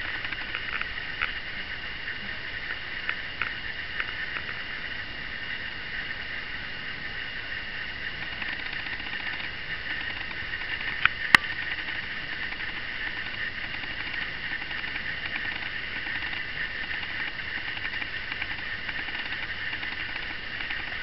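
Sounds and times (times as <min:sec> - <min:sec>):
sharp clicks: 0:00.0 - 0:01.4, 0:08.2 - 0:21.0
steady high hiss with whine: 0:00.0 - 0:21.0.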